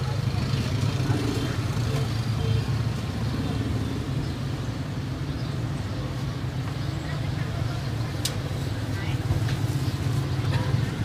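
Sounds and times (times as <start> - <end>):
faint voices: 0.0 - 4.6, 5.5 - 11.0
passing traffic rumble: 0.0 - 11.0.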